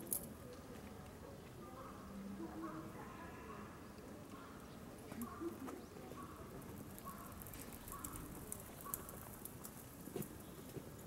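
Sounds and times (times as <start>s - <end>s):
faint indistinct voices: 0.0s - 11.0s.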